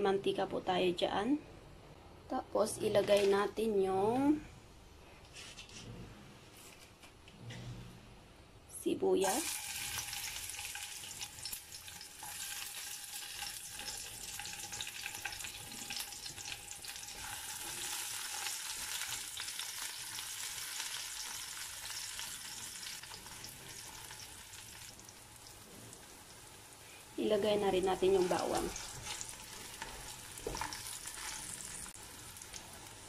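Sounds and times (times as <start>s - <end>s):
onion sizzling in hot oil: 9.2s - 33.0s
spatula stirring in pan: 28.0s - 32.9s.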